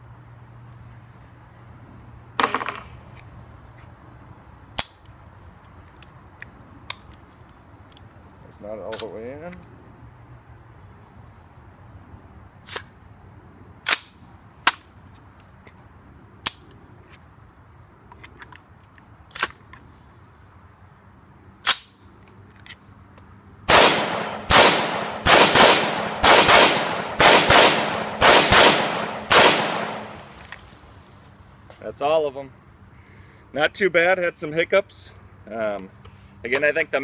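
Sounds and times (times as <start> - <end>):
rifle shots ringing out: 23.7 - 30.4.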